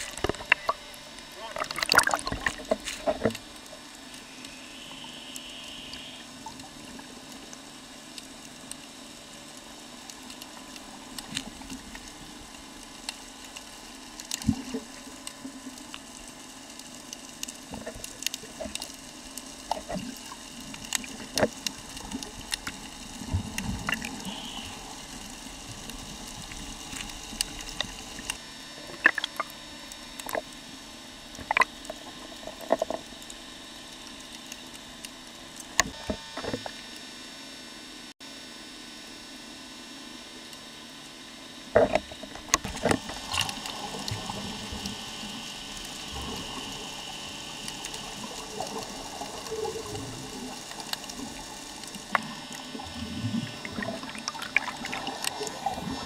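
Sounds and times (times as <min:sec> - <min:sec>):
sharp underwater clicks and crackles: 0:00.0 - 0:37.1, 0:40.4 - 0:56.0
underwater hiss: 0:01.7 - 0:07.1, 0:17.7 - 0:29.5, 0:42.7 - 0:56.0.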